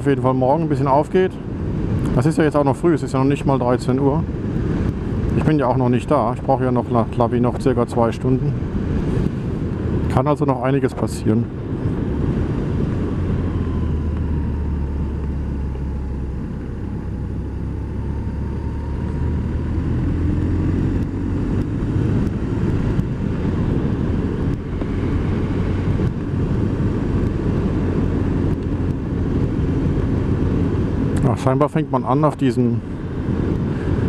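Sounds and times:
wind noise: 0:00.0 - 0:34.0
motorcycle engine running: 0:12.0 - 0:31.0.

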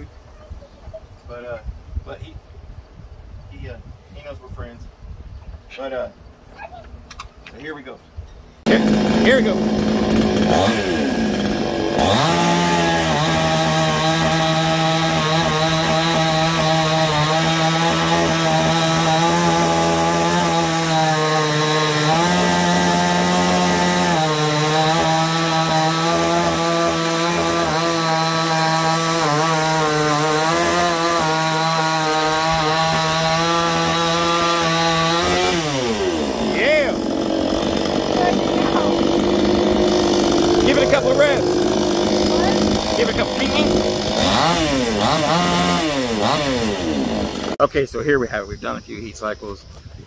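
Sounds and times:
chainsaw cutting log: 0:08.6 - 0:47.6.

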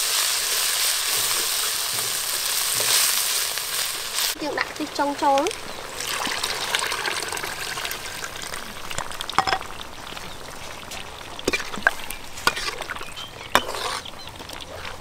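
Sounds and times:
wok sizzling: 0:00.0 - 0:15.0
metal spatula scraping wok: 0:00.1 - 0:04.0, 0:11.4 - 0:14.2.

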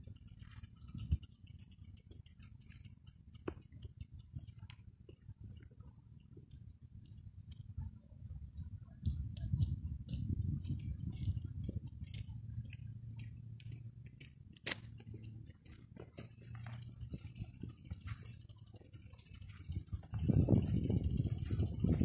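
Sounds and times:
wind rumble: 0:06.6 - 0:14.0, 0:16.3 - 0:22.0
footsteps on a path: 0:09.0 - 0:22.0.

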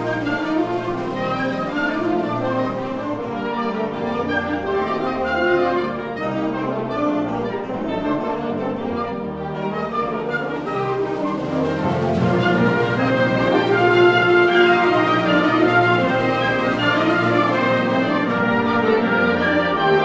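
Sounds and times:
wind band playing chords: 0:00.0 - 0:20.0.

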